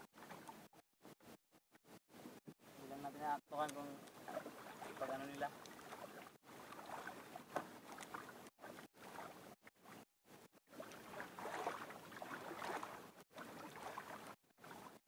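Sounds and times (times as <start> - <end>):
water sloshing around canoe: 0.0 - 0.8, 3.8 - 15.0.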